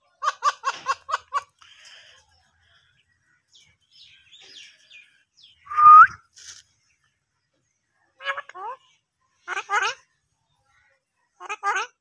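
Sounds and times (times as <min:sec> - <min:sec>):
parakeet calling: 0:08.2 - 0:10.1.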